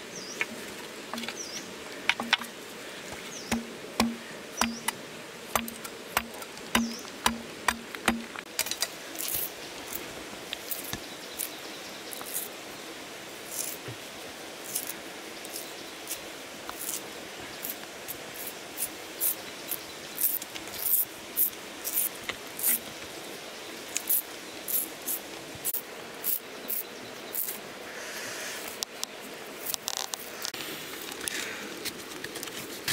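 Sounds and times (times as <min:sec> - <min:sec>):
machete knocking on bamboo: 0:03.5 - 0:05.0, 0:05.6 - 0:08.4
bamboo strips snapping and ripping: 0:05.6 - 0:09.5.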